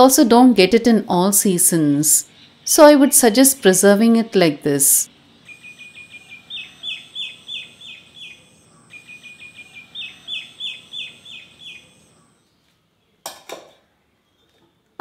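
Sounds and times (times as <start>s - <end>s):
songbird singing: 4.2s - 13.2s.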